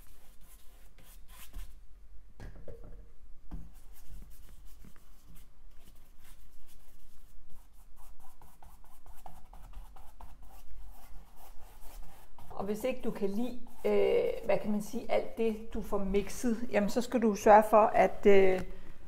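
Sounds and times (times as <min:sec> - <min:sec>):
paintbrush scrubbing on canvas: 0:03.7 - 0:14.7.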